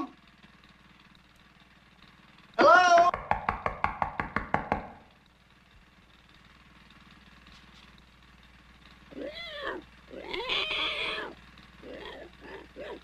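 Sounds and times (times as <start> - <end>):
squealing animal cries: 9.1 - 13.0.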